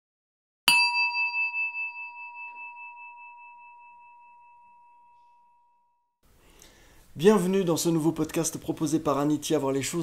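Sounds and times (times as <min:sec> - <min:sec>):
singing bowl ringing: 0:00.7 - 0:06.2.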